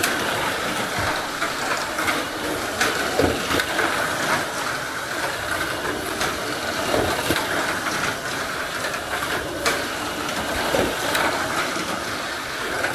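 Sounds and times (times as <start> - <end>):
toy car rattling along track walls: 0.0 - 12.9.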